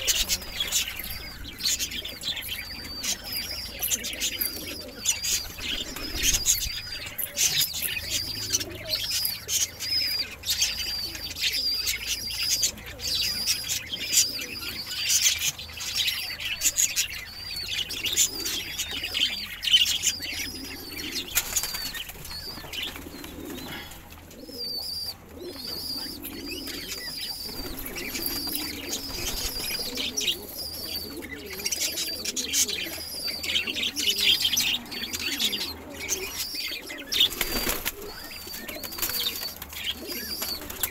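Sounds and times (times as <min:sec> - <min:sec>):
birds chirping: 0:00.0 - 0:40.9
pigeons cooing: 0:00.0 - 0:40.9
wings flapping: 0:21.3 - 0:23.6, 0:27.4 - 0:30.2, 0:37.1 - 0:40.9.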